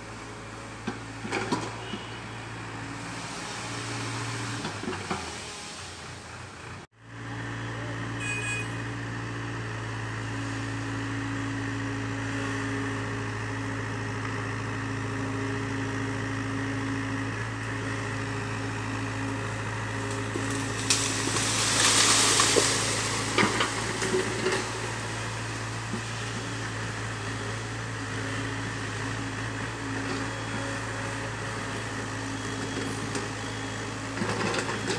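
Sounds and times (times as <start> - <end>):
rush of leaves and branches: 0.0 - 8.2, 8.9 - 34.9
excavator diesel engine running: 0.0 - 34.9
branches snapping: 20.0 - 24.7.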